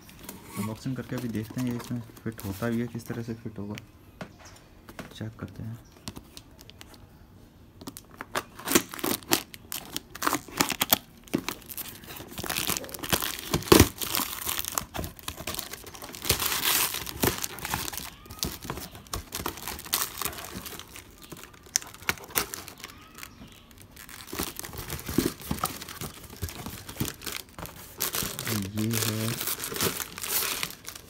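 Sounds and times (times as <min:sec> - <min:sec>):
packing tape ripping: 0:07.9 - 0:31.0
cardboard flaps tearing: 0:08.4 - 0:23.3.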